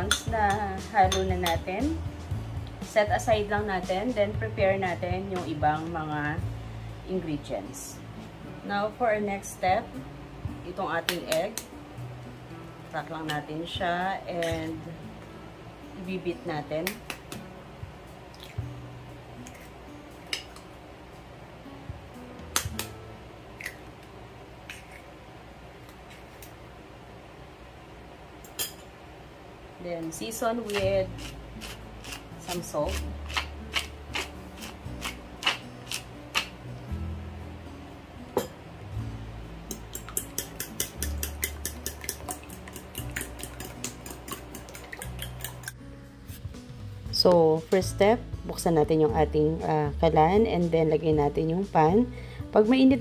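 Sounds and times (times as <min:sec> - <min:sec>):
soft background music: 0:00.0 - 0:53.0
eggshells cracking with fork taps: 0:33.3 - 0:36.5, 0:39.7 - 0:45.8.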